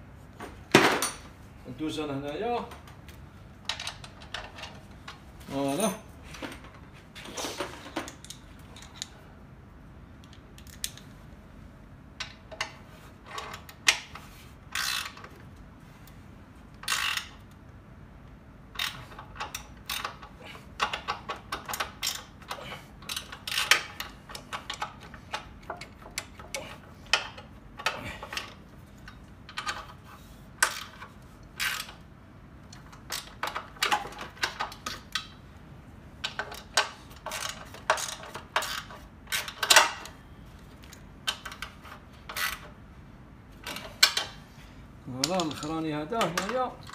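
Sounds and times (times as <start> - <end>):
wrench ratchet clicks: 14.7 - 15.2, 16.8 - 17.5, 18.7 - 26.4.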